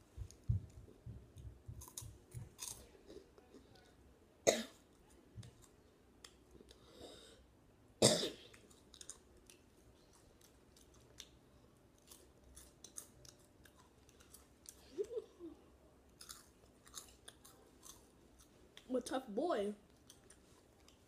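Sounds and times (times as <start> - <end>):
crunchy chewing: 1.7 - 3.7, 8.5 - 15.2, 16.1 - 18.9, 19.8 - 21.0
loud cough: 4.5 - 4.8, 8.0 - 8.4.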